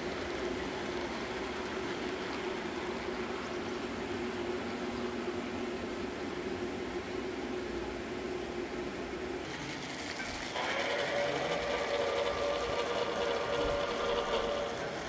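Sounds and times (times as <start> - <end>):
model train motor whine: 9.4 - 15.0.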